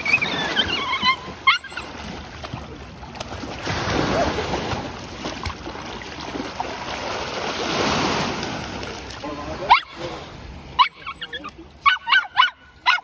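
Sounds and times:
puppy yelping: 0.0s - 2.0s, 10.8s - 13.0s
water splashing: 0.0s - 11.9s.

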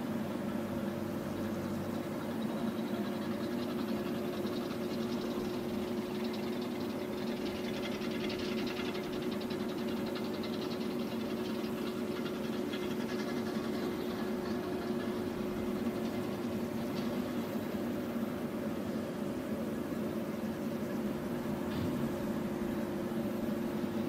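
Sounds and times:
baler mechanical rattle: 1.1s - 24.0s
tractor diesel engine: 8.9s - 19.8s.

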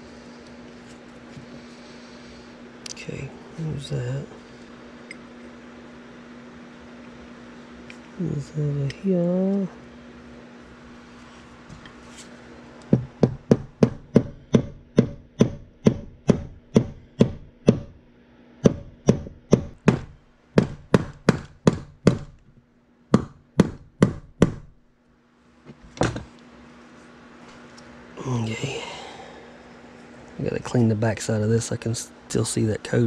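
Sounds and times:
sharp tapping knocks: 12.9s - 18.0s, 18.6s - 22.4s, 23.1s - 24.7s.

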